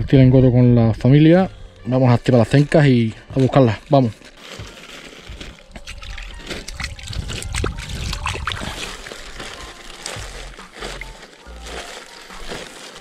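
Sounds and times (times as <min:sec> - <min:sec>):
small splashes in water: 0:05.8 - 0:09.6.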